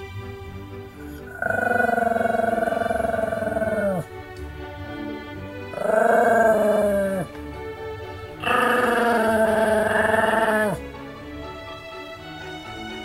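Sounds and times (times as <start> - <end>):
background music: 0.0 - 13.0
dog howling: 1.2 - 4.1, 5.7 - 7.4, 8.4 - 10.8.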